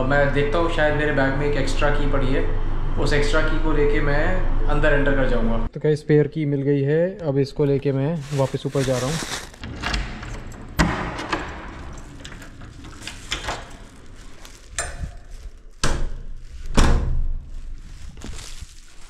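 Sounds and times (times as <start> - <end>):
keys clicking in a door lock: 9.6 - 13.9.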